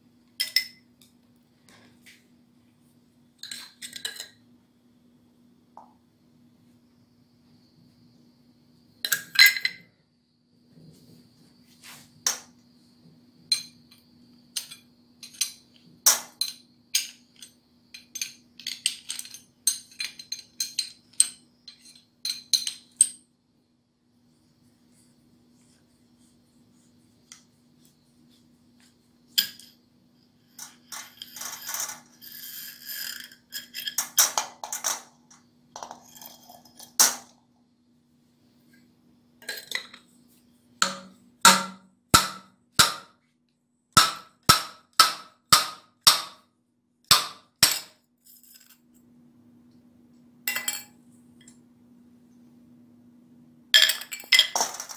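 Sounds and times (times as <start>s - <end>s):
faint low hum: 0.0s - 44.0s, 47.7s - 54.9s
metal parts clanking in metal pan: 30.6s - 35.2s.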